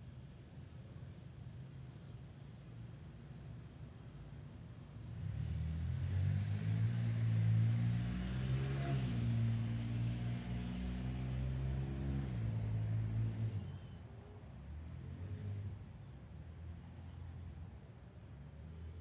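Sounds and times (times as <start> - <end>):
vehicle engine passing by: 5.1 - 14.0, 14.7 - 16.0.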